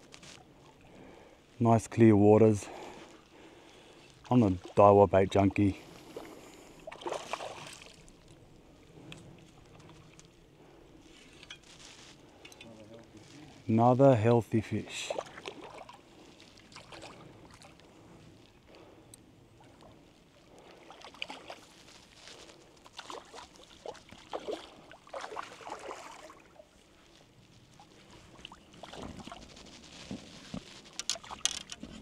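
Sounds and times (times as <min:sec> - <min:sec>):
creek water splashing: 0:02.7 - 0:10.3, 0:14.8 - 0:18.9, 0:19.5 - 0:29.5.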